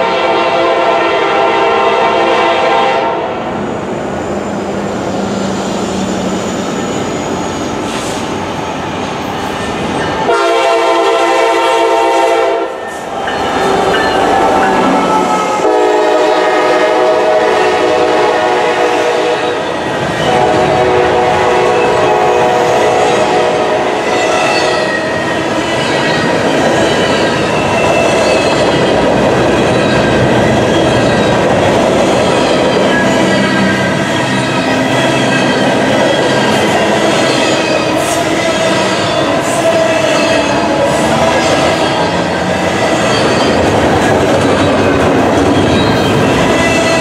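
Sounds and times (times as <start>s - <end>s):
locomotive air horn blasts: 0.0s - 3.3s, 10.3s - 12.8s, 15.0s - 19.6s, 20.3s - 24.2s
train rumble: 0.0s - 47.0s
wheels clattering on rail: 38.9s - 47.0s.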